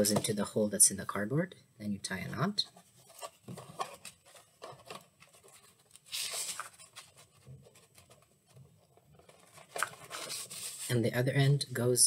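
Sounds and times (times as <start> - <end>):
paper and cardboard rustling: 2.7 - 11.1.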